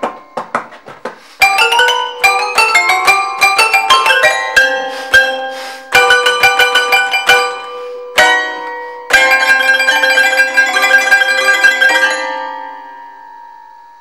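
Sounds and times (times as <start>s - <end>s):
toy piano ringing notes: 1.4s - 14.0s.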